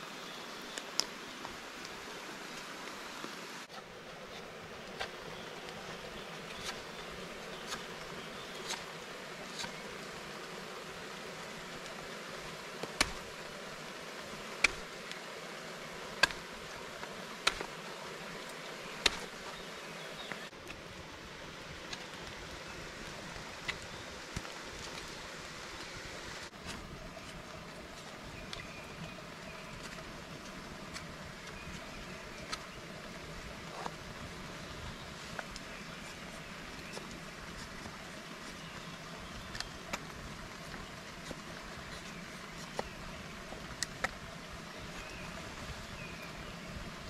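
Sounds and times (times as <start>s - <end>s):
background hiss: 0.0s - 47.0s
knife carving wooden stick: 6.5s - 9.9s.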